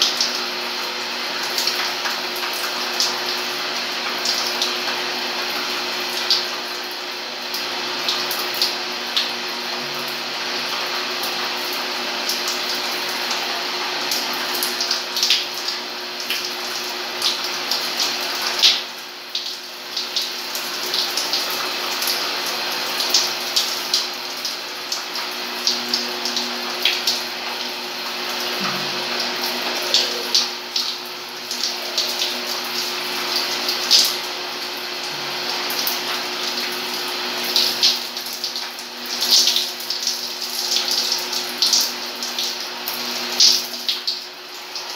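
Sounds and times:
shower water spraying: 0:00.0 - 0:44.9.

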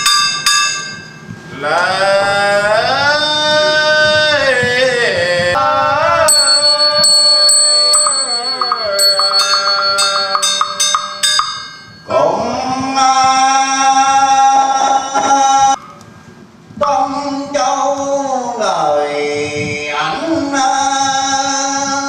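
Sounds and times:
small bell ringing: 0:06.3 - 0:12.1.

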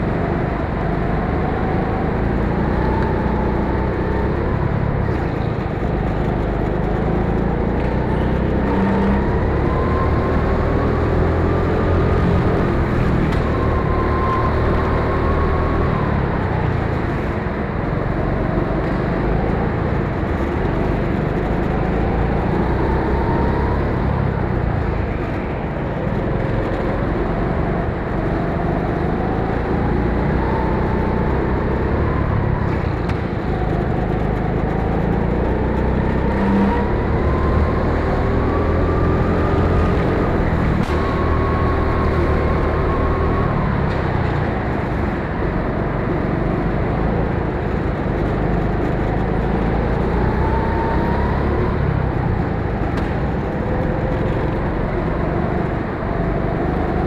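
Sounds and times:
go-kart engine revving: 0:26.2 - 0:57.0.

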